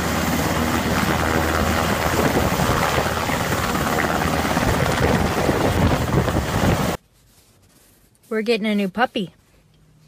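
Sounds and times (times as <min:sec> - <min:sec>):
helicopter rotor blade chop: 0:00.0 - 0:07.0.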